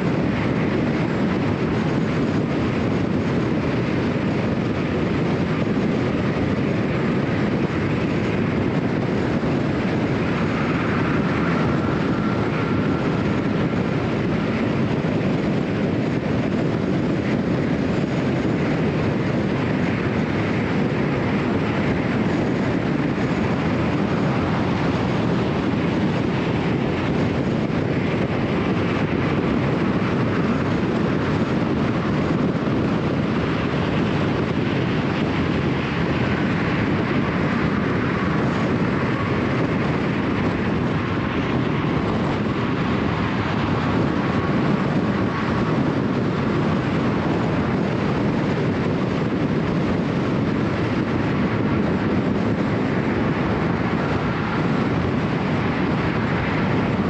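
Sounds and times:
car road and tyre noise: 0.0 - 57.0
wind rush: 0.0 - 57.0.

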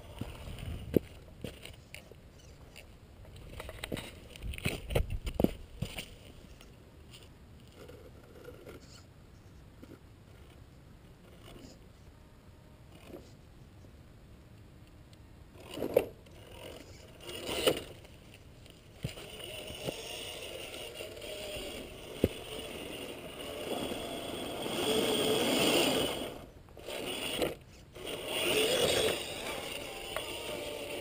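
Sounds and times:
toy car electric motor running: 15.6 - 18.0, 19.0 - 31.0
tyres scraping over rock: 19.0 - 31.0.

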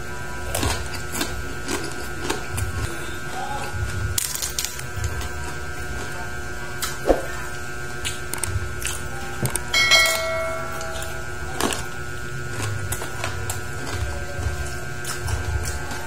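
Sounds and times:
crispy skin crackling and crunching: 0.3 - 9.7, 10.6 - 16.0
ringing clink: 9.7 - 11.3.

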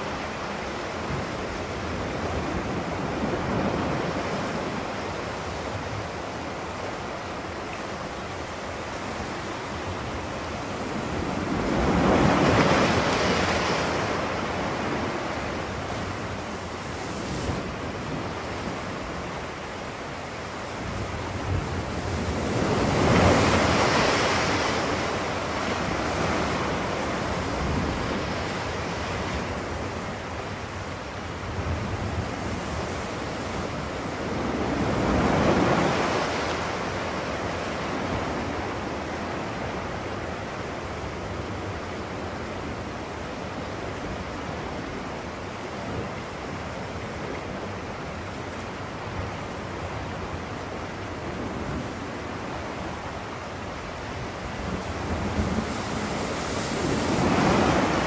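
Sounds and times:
ocean waves breaking: 0.0 - 58.0.

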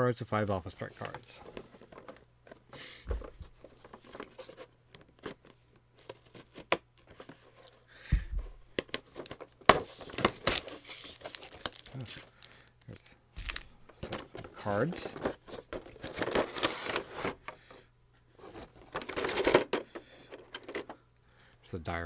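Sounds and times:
cardboard packaging tearing and crinkling: 6.0 - 6.8, 9.0 - 12.6
dull thumps: 8.0 - 8.6.

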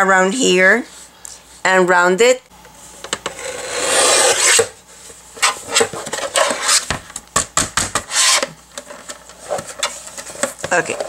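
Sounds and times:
paper trimmer scraping: 3.4 - 4.7, 8.0 - 8.5.

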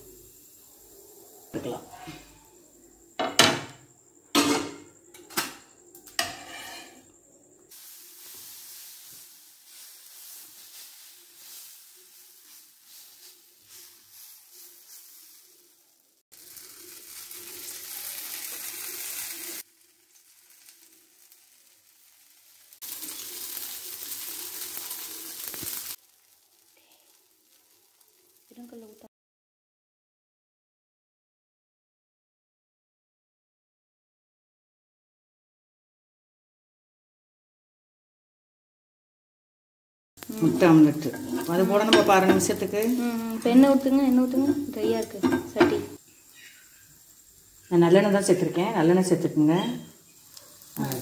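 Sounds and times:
batter sizzling on hot griddle: 0.0 - 29.1, 40.2 - 51.0
metal spoon clanking on pan: 3.2 - 7.1, 41.1 - 42.6, 44.5 - 46.0.

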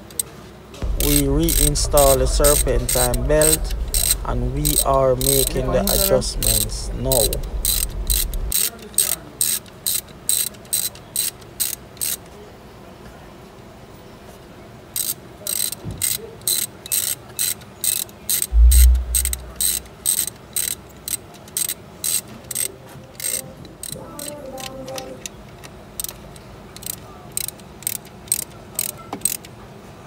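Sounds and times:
dull low thump: 0.8 - 8.5, 18.5 - 19.7
hand ratchet clicking: 0.9 - 12.2, 21.1 - 24.3, 26.8 - 29.4.

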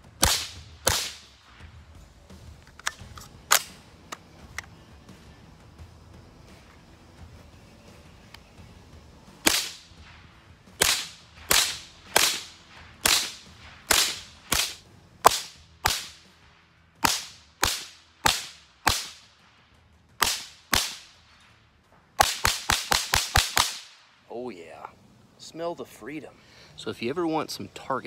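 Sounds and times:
rifle shots: 0.0 - 1.7, 9.4 - 16.3, 17.0 - 19.4, 20.2 - 21.2, 22.2 - 24.2.

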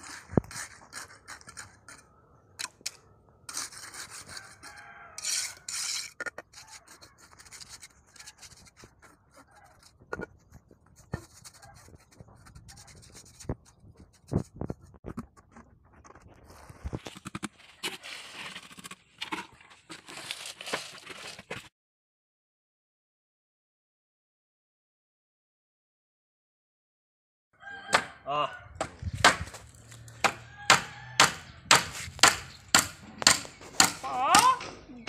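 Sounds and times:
wire scraping: 0.0 - 19.0.

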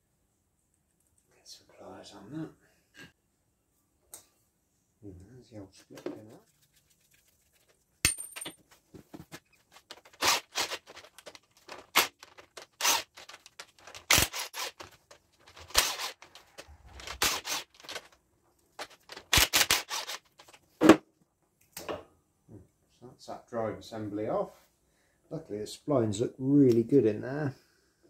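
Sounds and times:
impact wrench rattling: 9.9 - 18.1.

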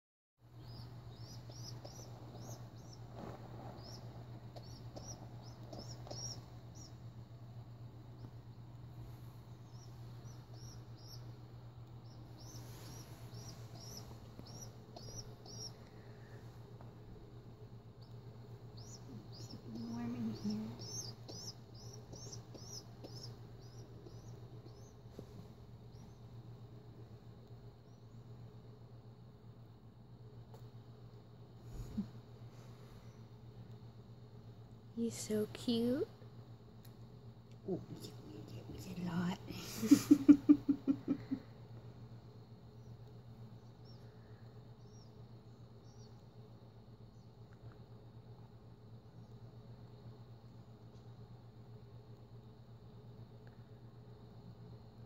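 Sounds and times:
baby pigeon peeping: 0.4 - 55.0
steady low hum: 0.4 - 55.0
bedding rustling: 2.1 - 4.6.

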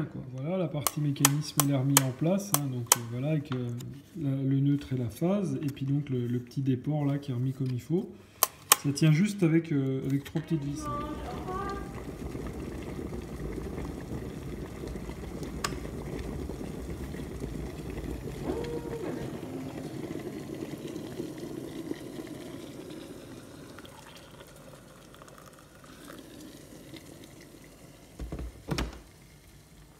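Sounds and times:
kettle water hissing and bubbling: 0.2 - 6.9, 7.6 - 29.9
kettle click: 0.8 - 3.6.

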